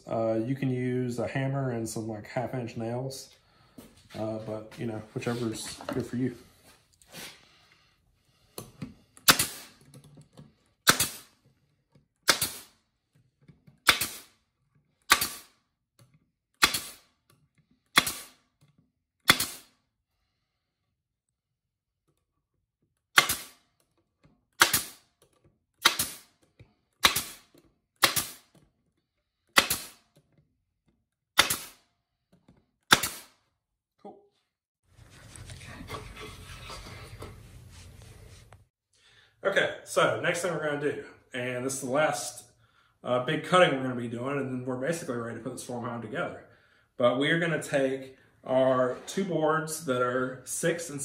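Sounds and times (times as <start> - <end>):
staple gun snapping into wood: 24.6 - 25.0, 25.8 - 26.2, 28.0 - 28.4, 29.6 - 30.0, 31.4 - 31.7.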